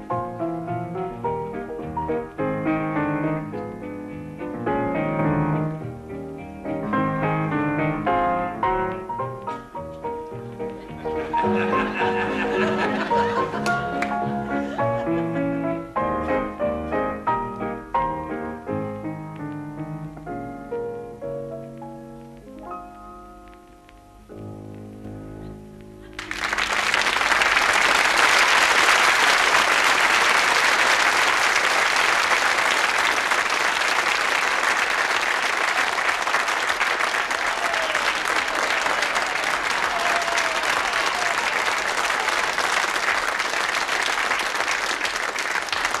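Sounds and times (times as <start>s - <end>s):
piano notes: 0.0s - 27.6s
audience applause: 11.0s - 15.1s, 26.1s - 46.0s.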